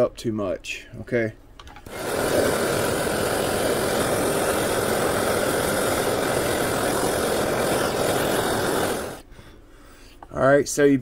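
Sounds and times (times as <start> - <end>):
gas torch hissing: 1.9 - 9.3.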